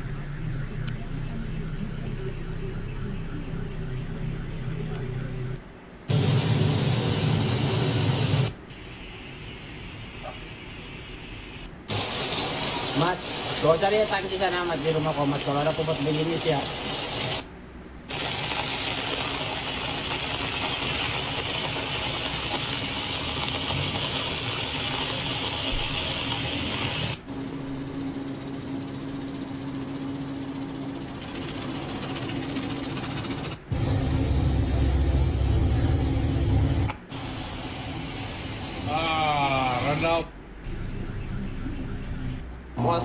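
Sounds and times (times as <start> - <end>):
rain: 11.9 - 17.5, 18.1 - 27.2.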